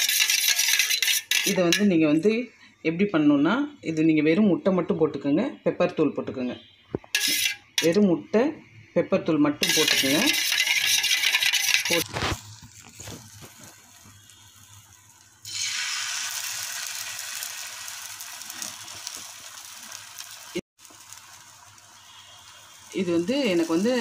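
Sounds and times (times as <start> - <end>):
egg sizzling on hot pan: 0.0 - 1.8, 6.9 - 8.0, 9.6 - 24.0
egg beaten in steel bowl: 0.0 - 1.9, 9.6 - 12.1.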